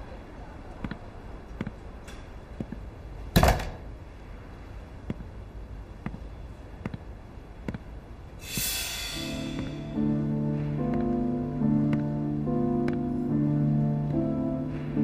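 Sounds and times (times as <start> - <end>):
soft footsteps: 0.8 - 3.2, 4.8 - 8.7, 9.5 - 13.3
shimmering swell: 8.4 - 11.7
background music: 8.4 - 15.0.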